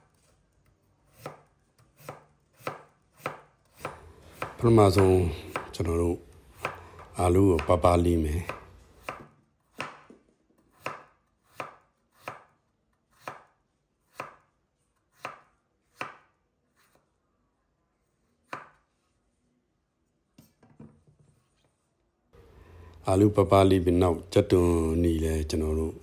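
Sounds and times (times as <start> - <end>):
knife slicing potato on board: 0.1 - 17.1, 18.4 - 18.9.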